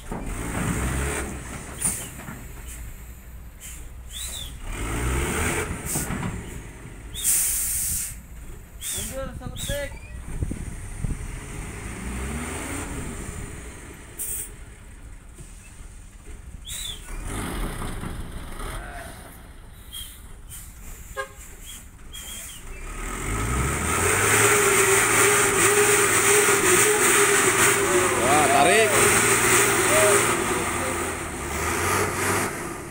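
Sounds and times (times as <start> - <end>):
faint outdoor sounds: 0.0 - 24.8
diesel engine revving: 0.0 - 32.9.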